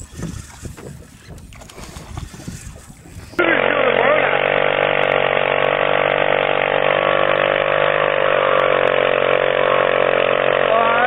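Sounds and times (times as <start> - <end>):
motorcycle engine at high revs: 3.4 - 11.0.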